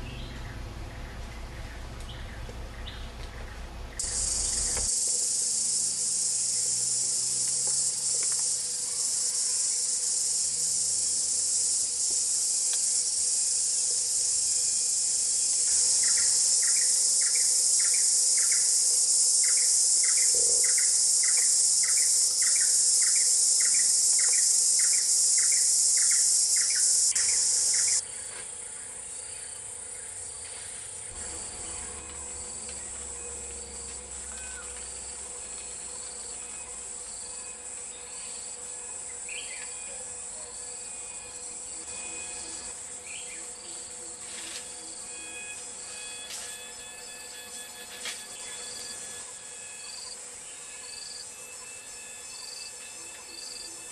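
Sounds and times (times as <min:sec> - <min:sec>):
insects shrilling: 0:04.0 - 0:28.0
short insect chirp: 0:04.0 - 0:28.0, 0:29.3 - 0:53.9.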